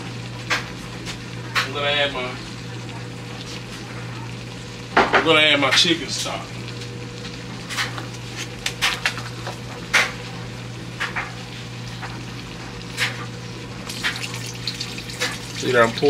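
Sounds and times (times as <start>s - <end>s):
food popping in a pot: 0.4s - 1.7s, 7.3s - 15.7s.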